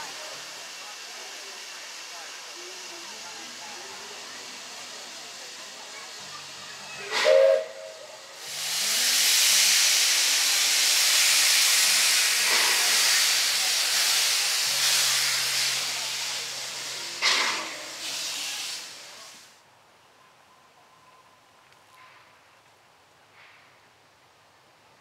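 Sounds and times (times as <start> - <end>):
steam hissing: 0.0 - 19.6
steam locomotive whistle: 7.1 - 8.2.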